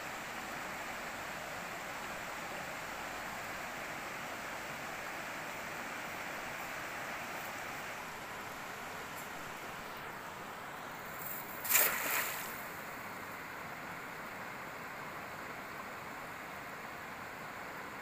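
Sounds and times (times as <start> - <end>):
water splash: 11.2 - 12.9.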